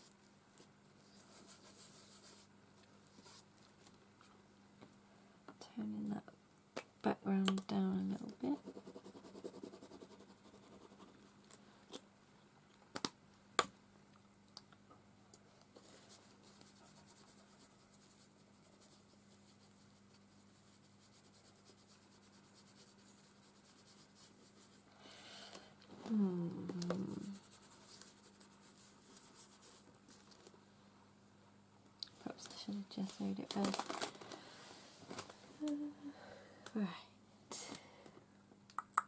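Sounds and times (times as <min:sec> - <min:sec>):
wipe rubbing over paper card: 0:01.1 - 0:02.5, 0:15.8 - 0:24.8, 0:27.1 - 0:29.9.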